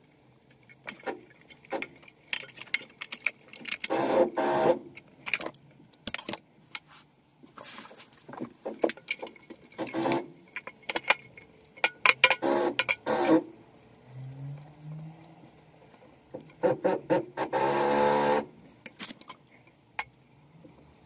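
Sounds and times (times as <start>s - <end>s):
metal clicking and rattling: 0.4s - 4.1s, 4.9s - 6.8s, 8.1s - 13.4s.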